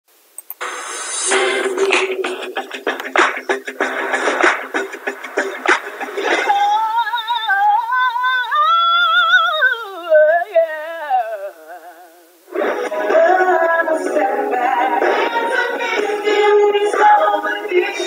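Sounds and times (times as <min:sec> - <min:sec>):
music with a beat: 0:00.6 - 0:06.8, 0:12.6 - 0:18.0
woman singing with vibrato: 0:06.3 - 0:18.0.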